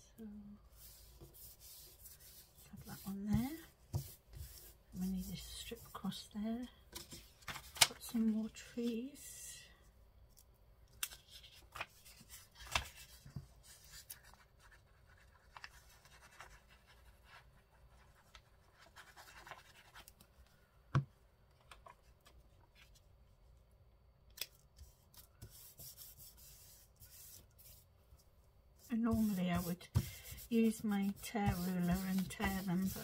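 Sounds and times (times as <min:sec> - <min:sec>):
paper rustling and scratching: 0:07.0 - 0:08.1, 0:11.0 - 0:20.2, 0:28.9 - 0:33.0.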